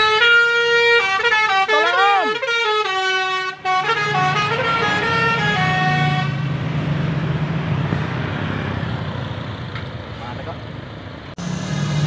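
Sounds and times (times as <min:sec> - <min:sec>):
multi-tone bus horn tune: 0:00.0 - 0:06.5
bus engine hum: 0:00.0 - 0:12.0.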